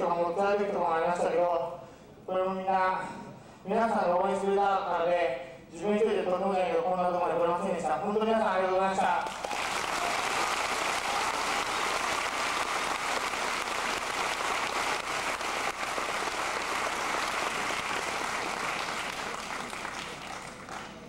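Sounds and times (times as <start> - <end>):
crowd applauding: 9.2 - 21.0.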